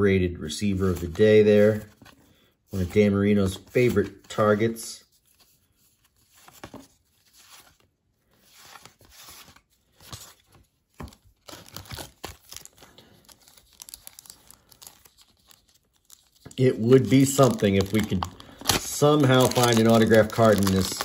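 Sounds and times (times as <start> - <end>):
wrapper tearing and crinkling: 11.4 - 21.0.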